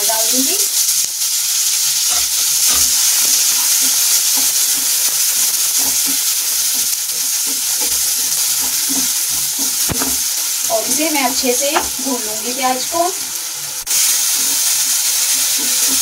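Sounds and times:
onions sizzling in hot oil: 0:00.0 - 0:16.0
wooden spatula scraping a pan: 0:01.9 - 0:13.1.

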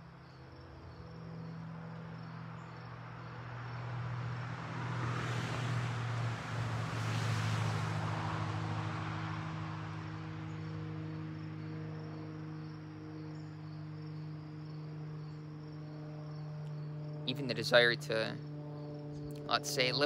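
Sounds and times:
crickets chirping: 0:00.0 - 0:20.0
vehicle passing: 0:00.0 - 0:20.0
steady low hum: 0:10.0 - 0:20.0.

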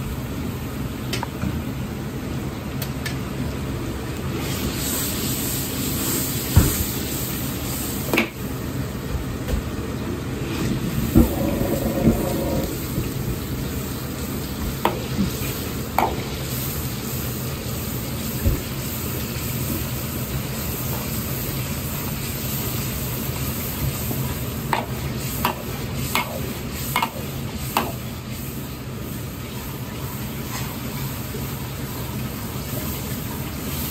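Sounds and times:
sauce sizzling and slopping: 0:10.8 - 0:33.9.

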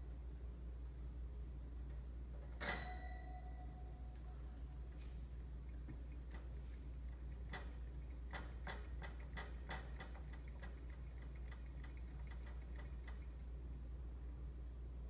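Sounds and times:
hamster clicking in cage: 0:05.6 - 0:13.5.

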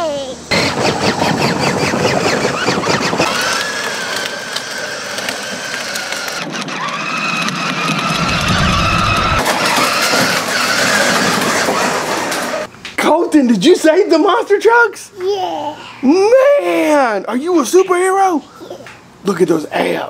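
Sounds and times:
electric motor whine: 0:00.5 - 0:12.7
wheels rolling on concrete: 0:00.5 - 0:12.7.

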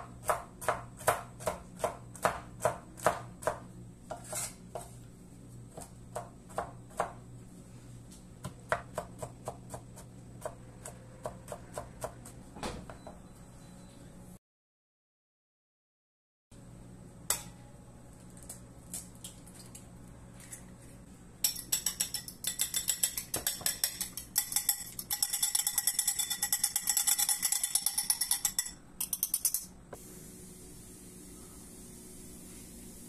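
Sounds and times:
fork beating egg in a bowl: 0:21.4 - 0:29.7.

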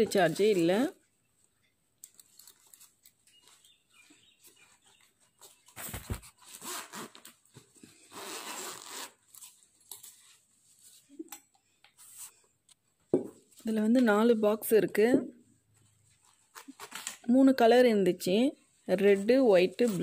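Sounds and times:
fabric rustling: 0:02.2 - 0:11.2, 0:18.8 - 0:20.0
zipper pulled open: 0:05.8 - 0:07.3, 0:08.0 - 0:09.4.

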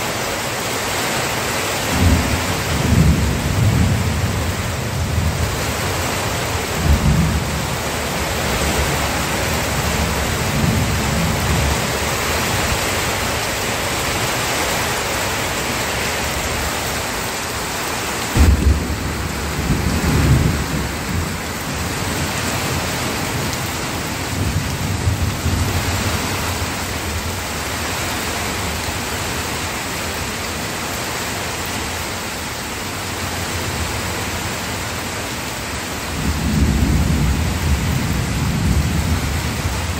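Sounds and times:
steady rain: 0:00.0 - 0:39.9
thunder rumbling: 0:01.9 - 0:13.5, 0:16.0 - 0:27.4, 0:36.2 - 0:39.9.

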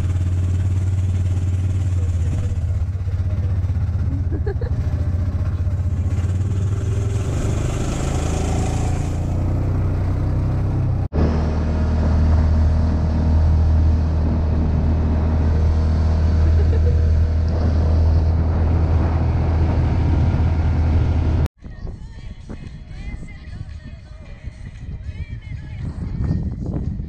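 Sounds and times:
utility vehicle engine droning: 0:00.0 - 0:21.5.

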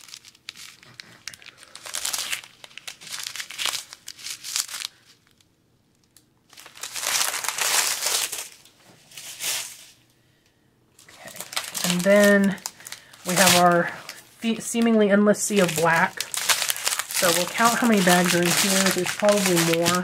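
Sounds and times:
plastic packets crinkling: 0:00.0 - 0:05.5, 0:06.1 - 0:10.0, 0:11.0 - 0:20.0.

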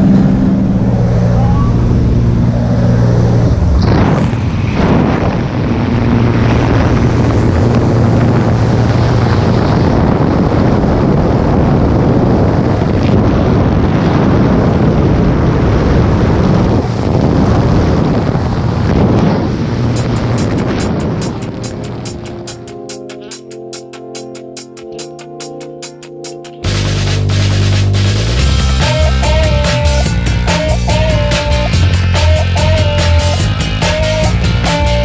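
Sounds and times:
wind buffeting microphone: 0:00.0 - 0:22.9
propeller engine hum: 0:00.0 - 0:35.0
music beat: 0:20.0 - 0:35.0.

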